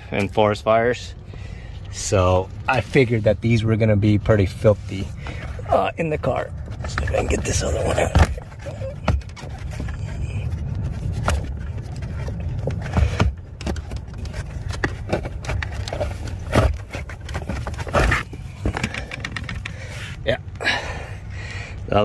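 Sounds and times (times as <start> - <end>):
plastic scraping: 4.7 - 20.2
plastic clicks and knocks: 18.6 - 19.8.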